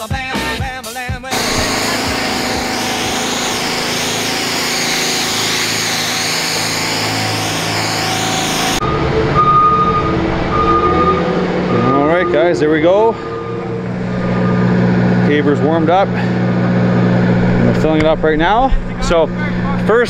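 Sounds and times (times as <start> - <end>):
backup alarm beeping: 1.3 - 15.2
diesel truck engine running: 1.3 - 20.0.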